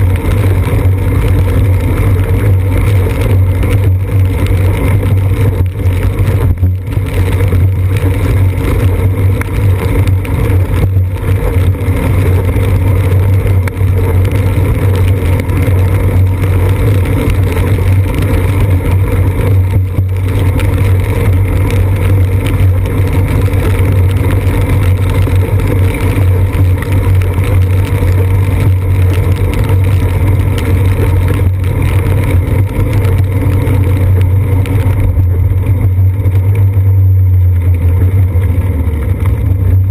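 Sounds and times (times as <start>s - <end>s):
bicycle rumbling on wet road: 0.0s - 39.9s.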